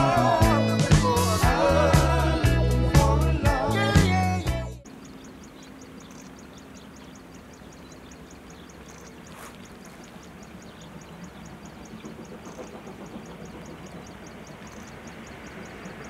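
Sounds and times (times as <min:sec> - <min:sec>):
distant steam train rumble: 0:04.8 - 0:16.0
small animal rapid ticking: 0:04.8 - 0:16.0.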